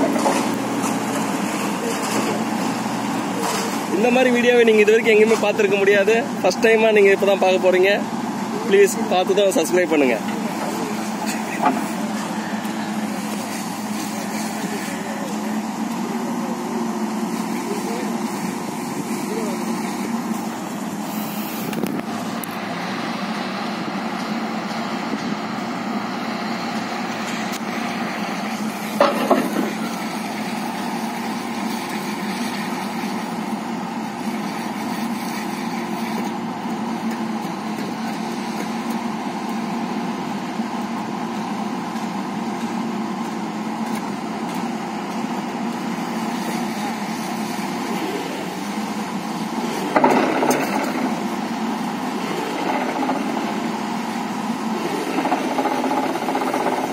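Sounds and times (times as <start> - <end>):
diesel engine running: 0.0 - 56.9
vibratory pile hammer: 49.8 - 56.9.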